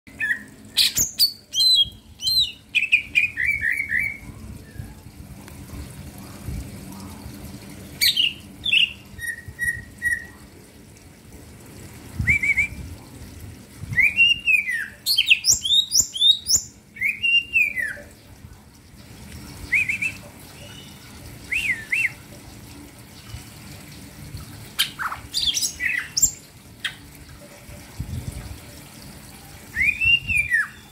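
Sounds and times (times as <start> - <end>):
bird whistling and chirping: 0.2 - 5.0, 8.0 - 10.4, 12.2 - 12.8, 13.9 - 18.1, 19.7 - 22.2, 29.7 - 30.9.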